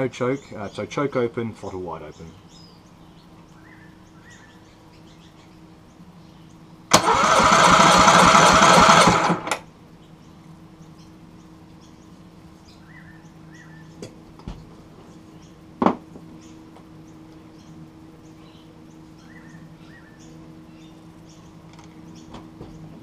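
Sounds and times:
starter motor cranking engine: 6.9s - 9.6s.

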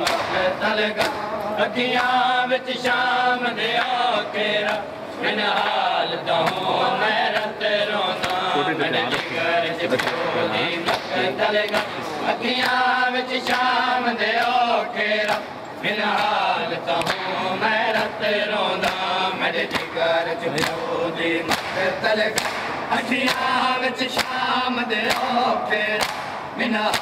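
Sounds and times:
mourners chanting a lament: 0.0s - 27.0s
hands slapping chests: 1.0s - 1.2s, 21.5s - 23.5s.

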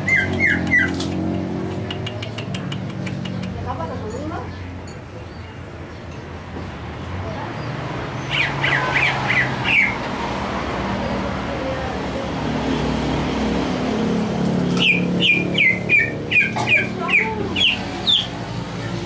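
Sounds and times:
bird chirping: 0.0s - 6.5s, 7.5s - 11.5s, 14.6s - 19.0s.

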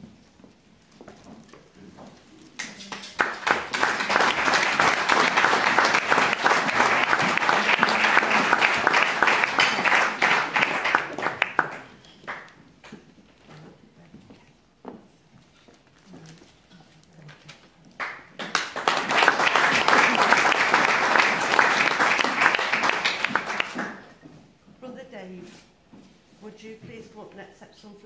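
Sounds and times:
people applauding: 2.6s - 12.6s, 18.0s - 24.1s.

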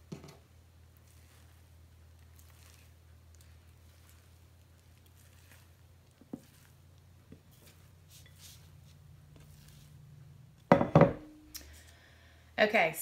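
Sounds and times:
dough squishing: 0.0s - 10.9s
loud knock with ringing: 10.7s - 11.3s.

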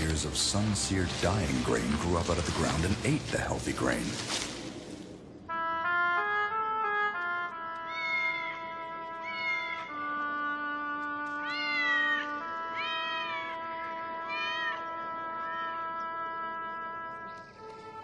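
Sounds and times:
sustained musical chords: 5.2s - 9.2s, 9.8s - 11.5s, 13.5s - 18.0s
cat meowing: 7.8s - 9.9s, 11.4s - 13.6s, 14.2s - 14.8s.

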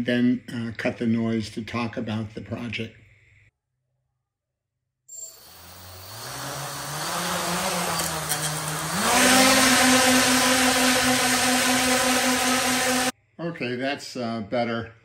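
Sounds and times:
quadcopter motors whining: 5.2s - 13.1s.

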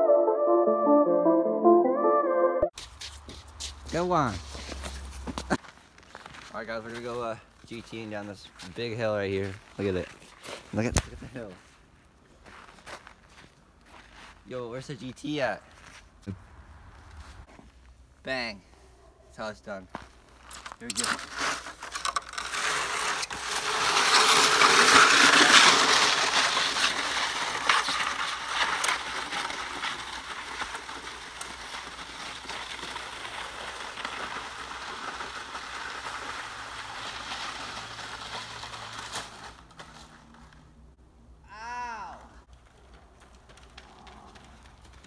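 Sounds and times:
sled skis scraping over snow: 2.8s - 11.8s, 19.4s - 40.6s.

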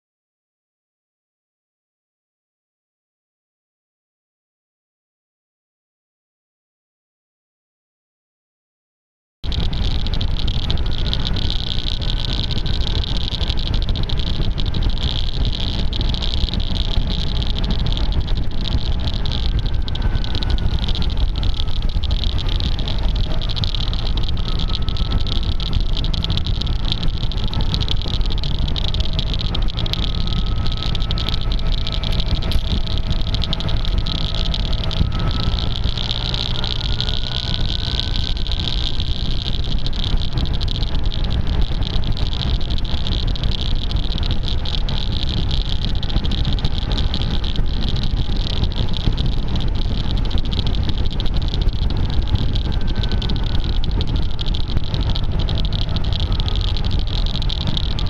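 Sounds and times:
scooter engine: 9.4s - 58.0s
tape clicking: 9.4s - 58.0s
wind rushing over microphone: 9.4s - 58.0s.

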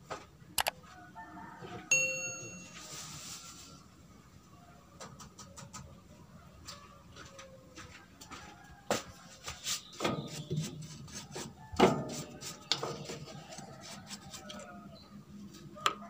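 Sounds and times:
hands scraping metal housing: 9.5s - 14.7s.

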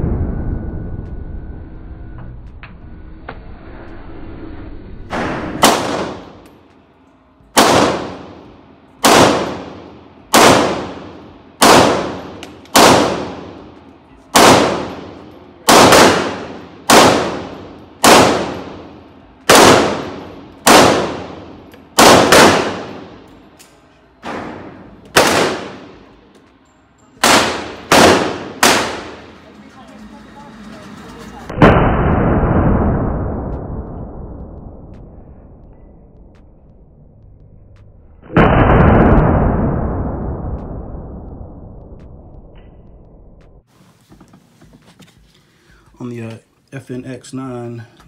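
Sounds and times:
pistol shots echoing: 5.6s - 6.4s, 7.6s - 8.4s, 9.0s - 13.6s, 14.3s - 23.3s, 24.2s - 26.0s, 27.2s - 29.4s.

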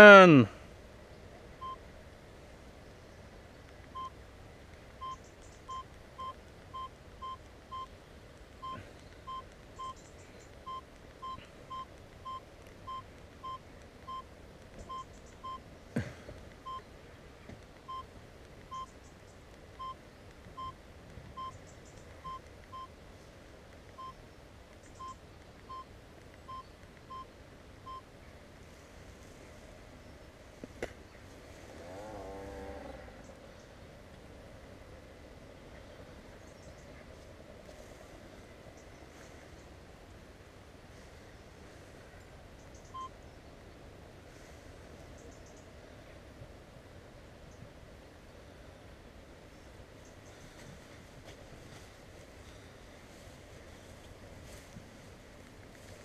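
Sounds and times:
short electronic beeps: 1.6s - 1.8s, 5.0s - 7.9s, 8.6s - 10.0s, 10.7s - 14.2s, 14.9s - 15.6s, 16.6s - 16.8s, 20.6s - 20.8s, 21.4s - 21.6s, 26.5s - 27.3s, 27.9s - 28.1s.

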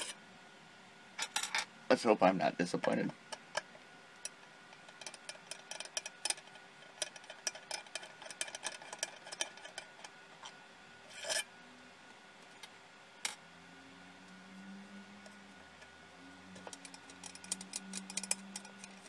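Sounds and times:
screwdriver clicks and scraping: 4.9s - 10.1s, 16.6s - 19.0s.

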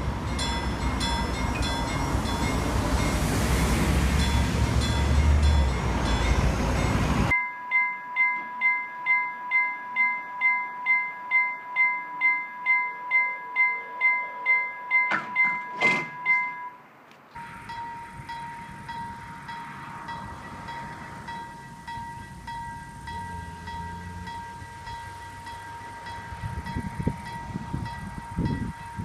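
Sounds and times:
level crossing warning bell: 0.0s - 16.8s, 17.4s - 29.0s
passing train: 0.0s - 29.0s
steady electronic tone: 17.4s - 29.0s.

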